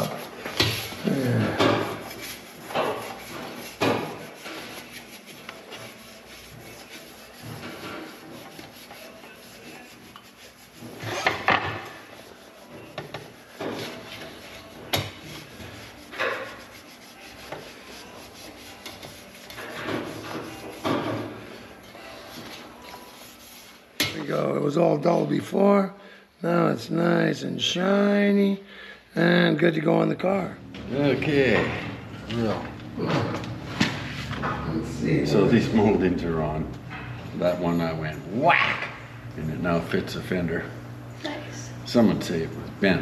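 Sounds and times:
rubbing on metal: 0:00.0 - 0:23.9.

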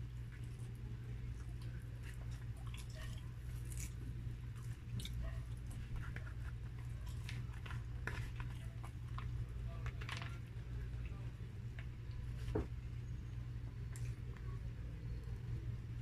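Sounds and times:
steady low hum: 0:00.0 - 0:16.0
person chewing: 0:00.3 - 0:09.2.

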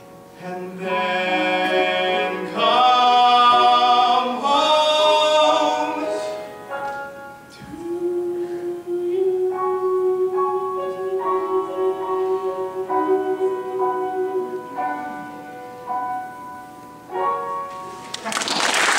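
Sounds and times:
piano chords: 0:00.0 - 0:18.9
man singing a long note: 0:00.4 - 0:06.4, 0:07.6 - 0:15.0.

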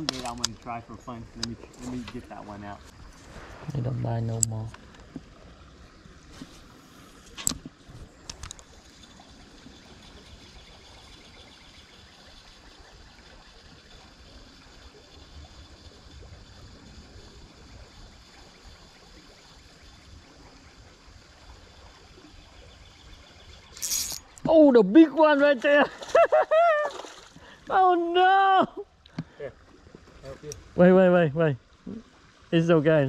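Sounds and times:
creek water trickling: 0:00.0 - 0:33.0.

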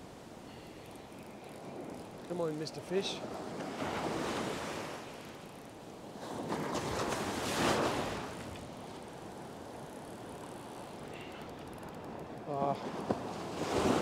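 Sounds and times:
surf waves breaking on beach: 0:00.0 - 0:14.0.

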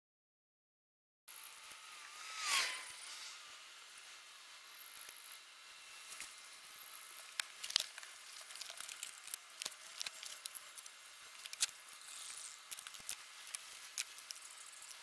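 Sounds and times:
plastic bag crinkling: 0:07.6 - 0:11.8.

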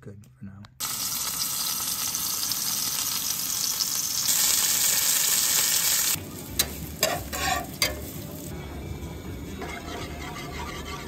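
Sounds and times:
chicken sizzling in a skillet: 0:00.8 - 0:08.6
onion frying in oil: 0:00.8 - 0:08.6
utensil scraping a pan: 0:06.6 - 0:08.3, 0:09.6 - 0:11.0.

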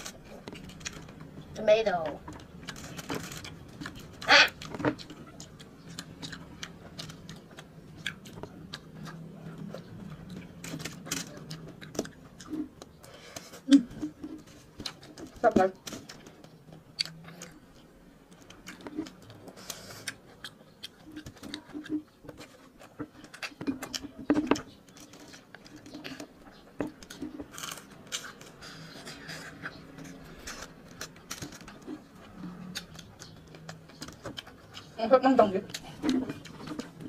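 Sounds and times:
chewing and crunching: 0:00.0 - 0:37.0
clicks and crackles of foil: 0:01.8 - 0:07.6, 0:10.2 - 0:12.1, 0:23.2 - 0:28.9, 0:30.0 - 0:32.0.

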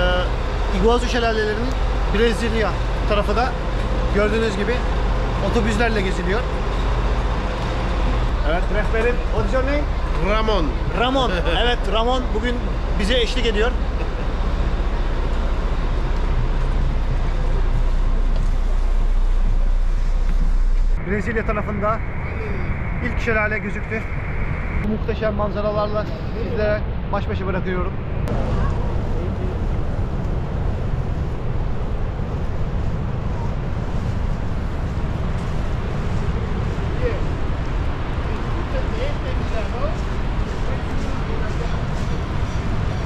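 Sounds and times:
bus engine running: 0:00.0 - 0:22.9, 0:28.0 - 0:43.0
distant waterfall roar: 0:00.0 - 0:43.0
road noise: 0:00.0 - 0:43.0
wind buffeting microphone: 0:01.8 - 0:43.0.

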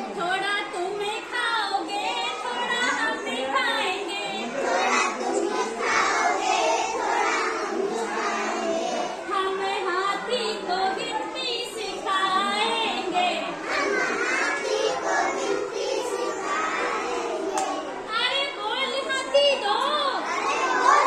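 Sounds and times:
children chanting in unison: 0:04.2 - 0:09.3, 0:12.4 - 0:18.0, 0:20.2 - 0:21.0
woman's voice leading: 0:12.1 - 0:13.5.

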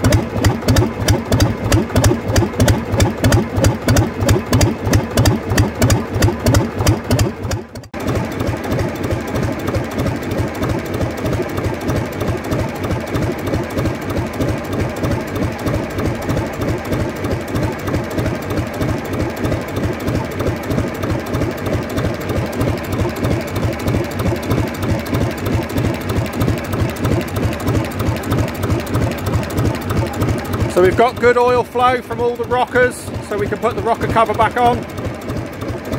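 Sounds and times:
diesel engine running: 0:00.0 - 0:35.9.

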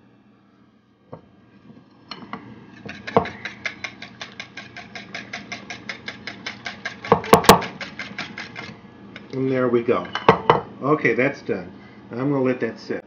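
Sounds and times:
whisk clicking against bowl: 0:02.8 - 0:09.4.

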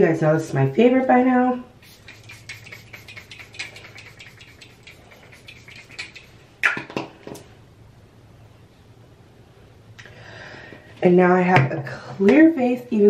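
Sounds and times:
patting on face: 0:01.8 - 0:06.9.

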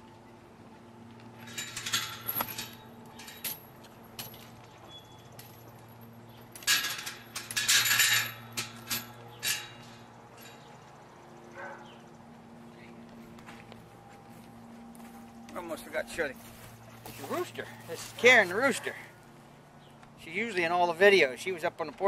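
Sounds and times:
metallic jangling and clinking: 0:01.4 - 0:11.9.

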